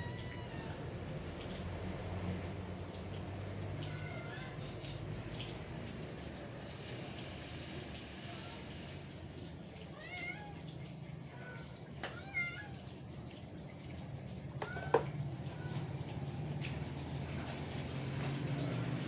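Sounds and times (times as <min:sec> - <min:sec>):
cat mewing: 0:00.0 - 0:01.3, 0:03.6 - 0:05.0, 0:09.8 - 0:13.0, 0:14.6 - 0:16.2.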